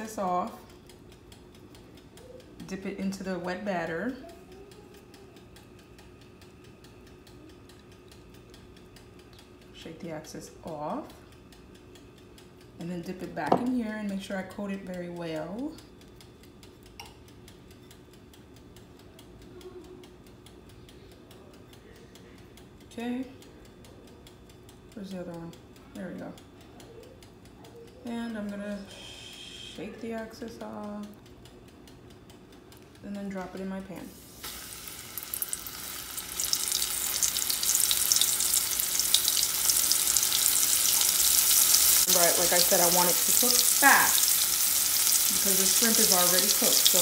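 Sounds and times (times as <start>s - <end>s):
shrimp frying in hot oil: 34.1s - 47.0s.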